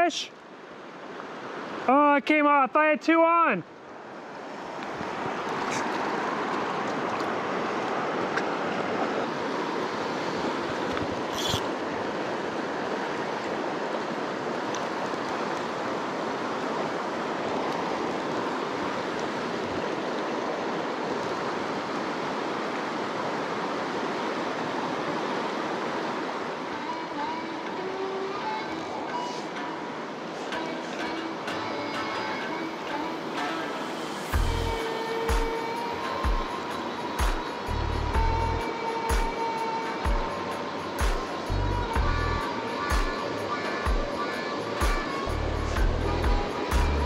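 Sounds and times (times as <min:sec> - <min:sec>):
creek rushing over rocks: 0:00.0 - 0:47.0.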